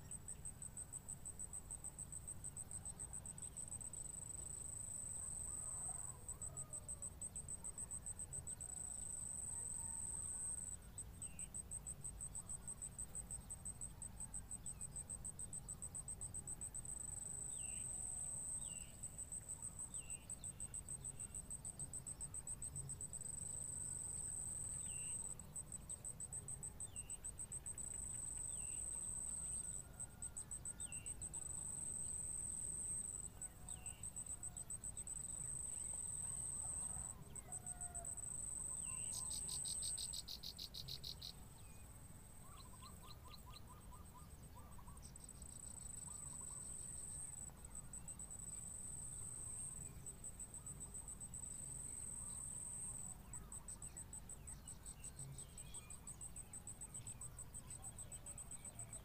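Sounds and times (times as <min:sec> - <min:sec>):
faint bird chirps: 0:05.2 - 0:32.4, 0:33.0 - 0:41.8, 0:42.4 - 0:59.0
insects trilling: 0:08.5 - 0:41.4.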